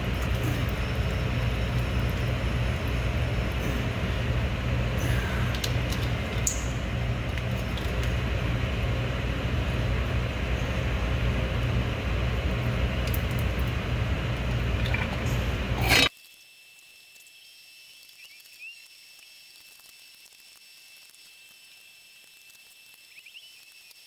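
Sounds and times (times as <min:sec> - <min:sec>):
low machine rumble: 0:00.0 - 0:16.1.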